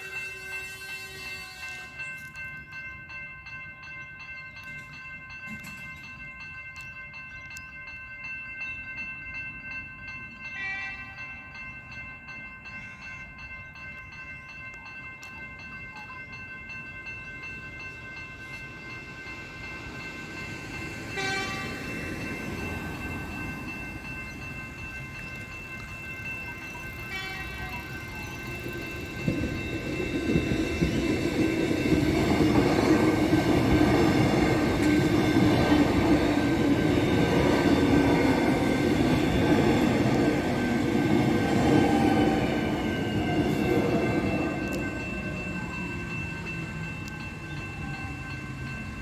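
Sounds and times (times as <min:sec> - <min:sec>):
train horn blast: 0:00.0 - 0:02.0, 0:21.2 - 0:21.8
level crossing bells ringing: 0:00.0 - 0:49.0
train rumble: 0:14.2 - 0:49.0.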